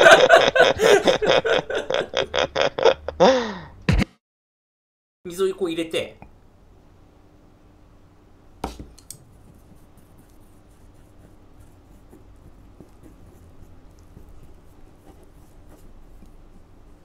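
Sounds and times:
chopsticks stirring dough in bowl: 8.7 - 17.0.

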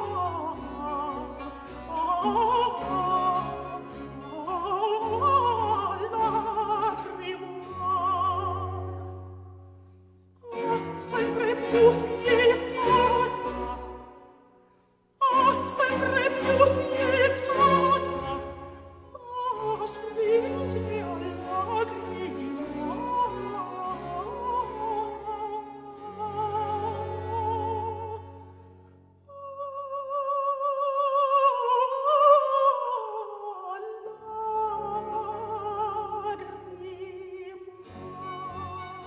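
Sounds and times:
countertenor singing: 0.0 - 9.0, 10.4 - 14.3, 15.2 - 28.4
string accompaniment: 0.0 - 29.1, 29.7 - 39.0.

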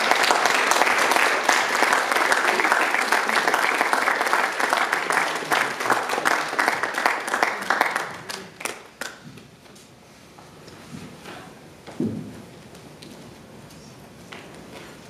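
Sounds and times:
audience applauding: 0.0 - 9.2.

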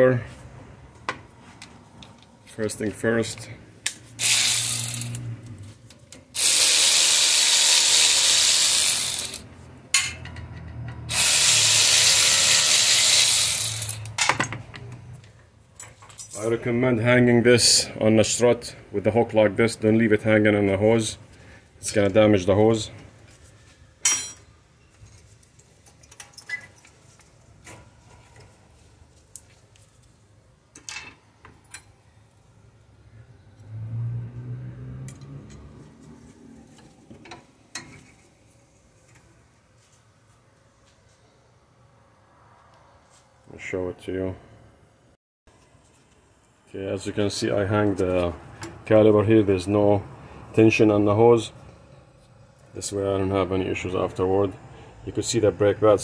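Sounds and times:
pneumatic air ratchet running: 4.2 - 5.3, 6.4 - 9.5, 11.1 - 14.2.

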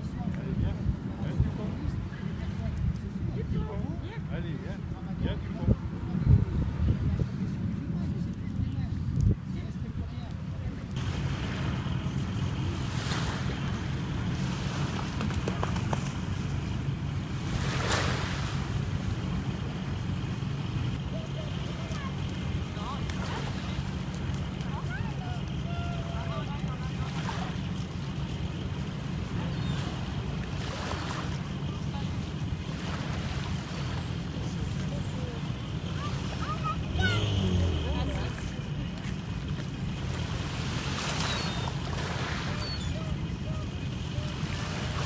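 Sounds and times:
wind rumble on microphone: 0.0 - 21.0
small waves washing onto pebbles: 17.2 - 19.5, 35.4 - 45.0.

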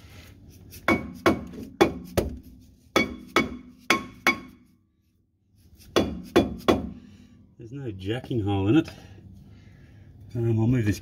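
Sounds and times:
hammer striking ringing brake disc: 0.9 - 2.2, 3.0 - 4.7.

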